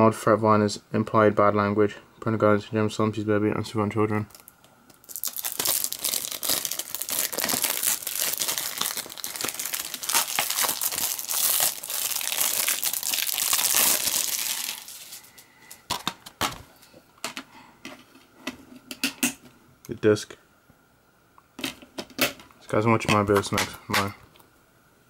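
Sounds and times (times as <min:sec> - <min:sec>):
plastic wrap crinkling and tearing: 0:04.3 - 0:15.8.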